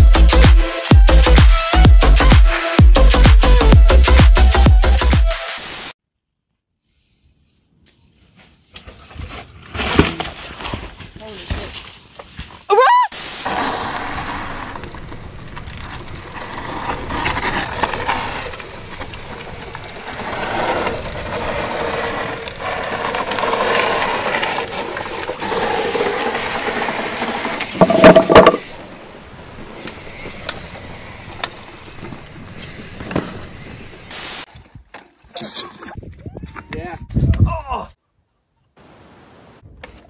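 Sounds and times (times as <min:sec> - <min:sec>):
bike tyres rolling on rock: 0:07.8 - 0:12.7, 0:13.4 - 0:34.8
chain rattling: 0:17.4 - 0:21.3, 0:30.4 - 0:32.4.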